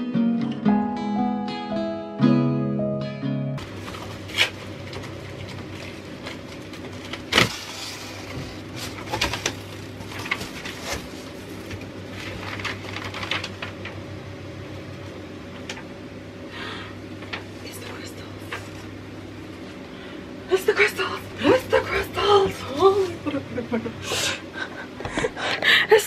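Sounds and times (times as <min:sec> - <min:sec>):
cardboard and paper rustling: 0:03.6 - 0:14.0.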